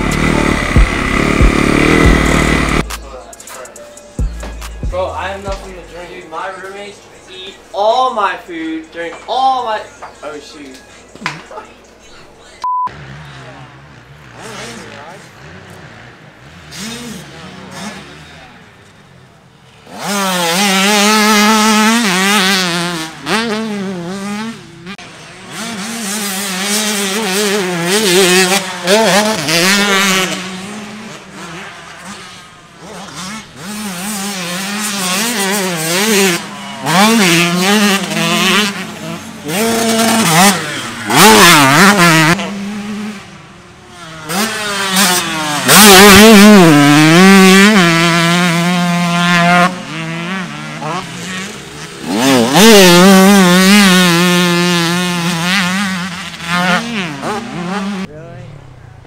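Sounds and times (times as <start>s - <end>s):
dirt bike engines revving: 0.0s - 12.1s, 12.8s - 59.0s.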